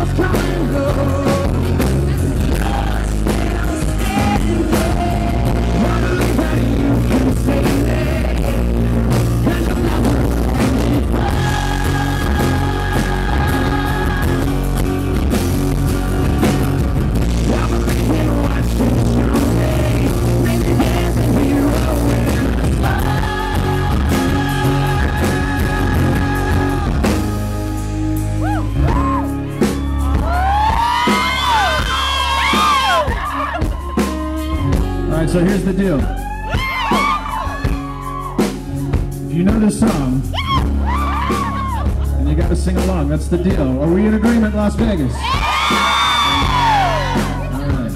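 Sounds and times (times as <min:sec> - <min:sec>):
man singing: 0:00.0 - 0:14.8, 0:17.2 - 0:27.9, 0:30.2 - 0:38.1, 0:39.3 - 0:40.4
acoustic guitars strumming: 0:00.0 - 0:36.0
fans screaming and whooping: 0:28.2 - 0:39.1, 0:40.2 - 0:42.2, 0:43.9 - 0:47.9.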